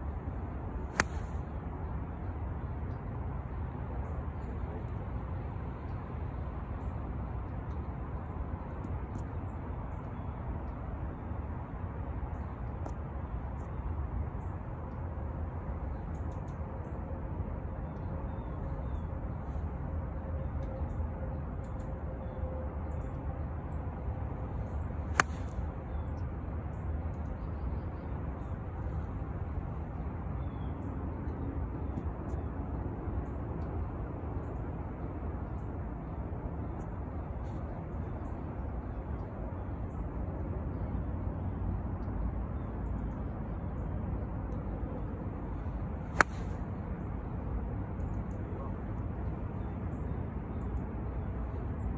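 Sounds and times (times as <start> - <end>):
golf club striking ball: 0.9 - 1.3, 25.1 - 25.6, 46.2 - 46.5.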